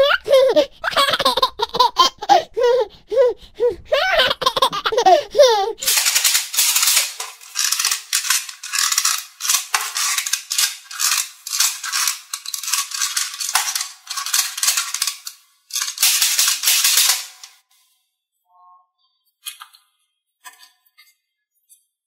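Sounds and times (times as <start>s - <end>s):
glitter stirred in plastic tub: 5.8s - 17.6s.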